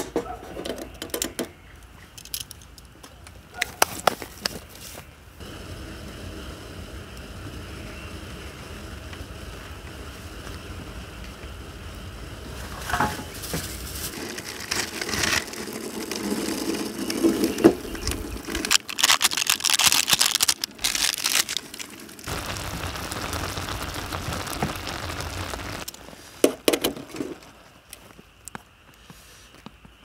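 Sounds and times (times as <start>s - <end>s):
water boiling with hissing: 5.4s - 28.2s
wood fire crackling: 5.4s - 28.7s.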